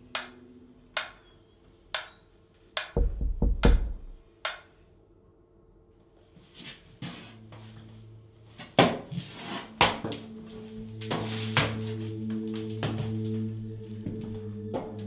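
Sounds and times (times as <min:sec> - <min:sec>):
low musical drone: 0:00.0 - 0:01.8, 0:07.2 - 0:15.0.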